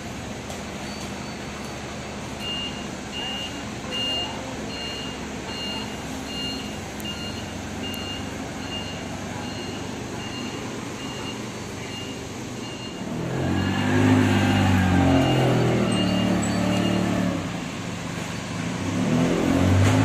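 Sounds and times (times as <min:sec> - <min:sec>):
forklift engine running: 0:00.0 - 0:20.0
forklift backup alarm beeping: 0:00.8 - 0:17.5.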